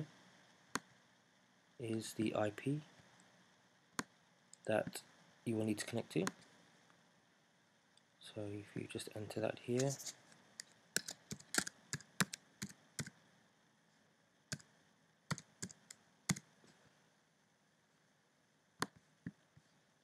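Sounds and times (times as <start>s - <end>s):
computer keyboard key clicks: 11.0s - 13.1s.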